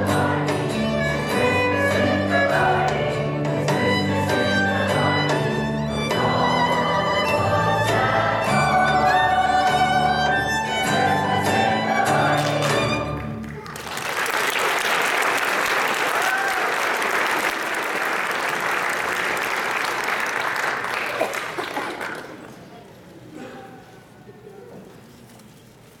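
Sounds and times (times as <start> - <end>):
choir singing with strings: 0.0 - 13.4
audience applauding: 12.2 - 22.6.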